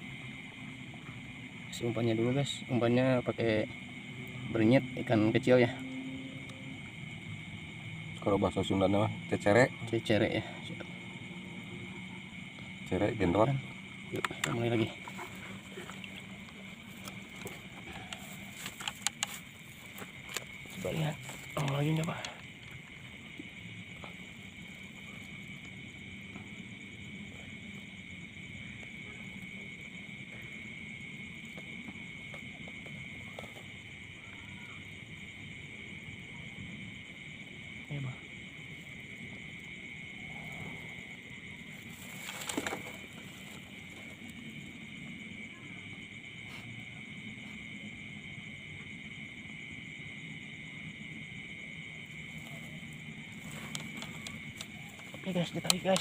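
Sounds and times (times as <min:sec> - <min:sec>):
low background rumble: 0:00.0 - 0:42.2
crickets trilling: 0:00.0 - 0:56.0
fast-pulsing insect trill: 0:00.0 - 0:56.0
faint clicks: 0:14.2 - 0:22.8, 0:53.5 - 0:56.0.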